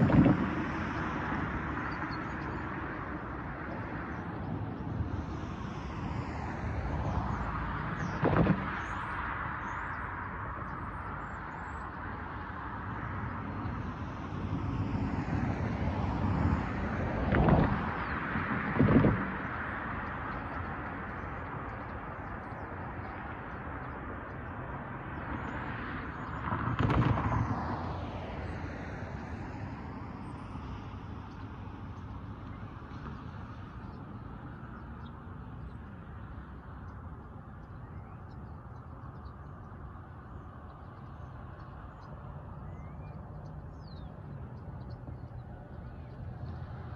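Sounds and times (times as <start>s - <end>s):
cars passing: 0.0s - 46.9s
distant traffic: 0.0s - 46.9s.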